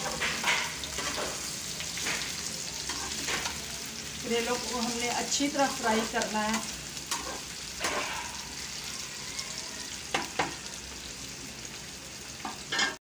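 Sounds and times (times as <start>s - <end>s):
vegetables sizzling in a pan: 0.0s - 13.0s
metal spoon knocking on pan: 10.1s - 10.6s.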